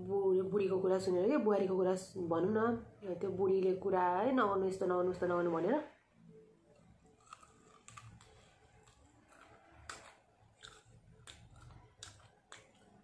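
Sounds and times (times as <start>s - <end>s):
chewing crunchy food: 6.7s - 13.0s.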